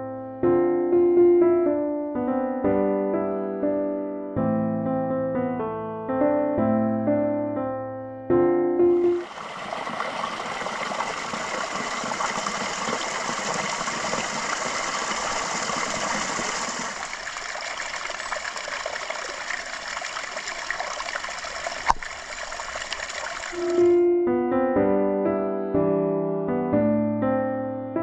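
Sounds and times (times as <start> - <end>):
stream splashing over rocks: 9.1 - 23.9.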